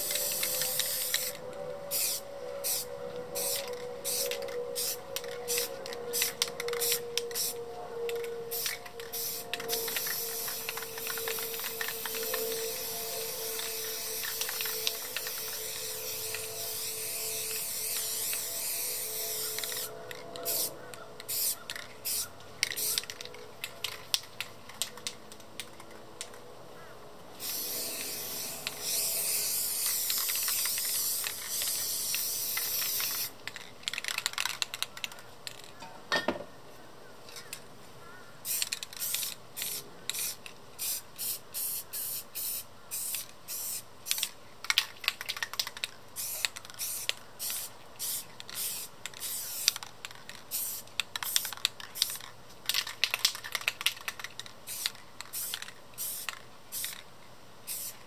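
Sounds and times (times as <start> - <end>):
aerosol spray can hissing: 8.5 - 19.9, 27.4 - 33.3, 46.2 - 49.8, 50.5 - 52.2, 54.7 - 57.0, 57.7 - 58.0.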